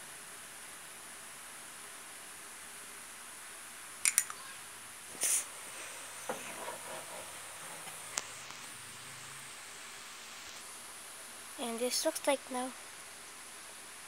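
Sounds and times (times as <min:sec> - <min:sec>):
faint steady hiss: 0:00.0 - 0:14.0
sharp clicks: 0:04.0 - 0:04.4.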